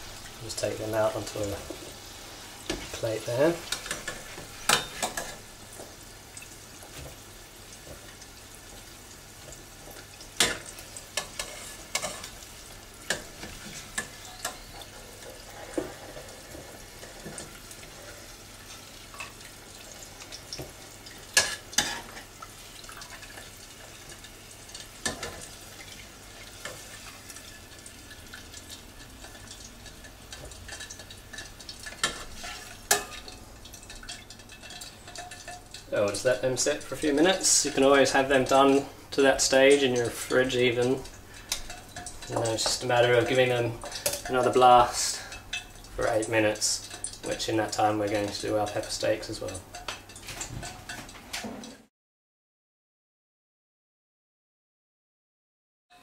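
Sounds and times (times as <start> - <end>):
potatoes sizzling in hot oil: 0.0 - 51.4
metal tongs clinking on pan: 3.6 - 5.4, 10.4 - 12.4, 13.1 - 15.0, 29.0 - 36.2, 39.6 - 51.2.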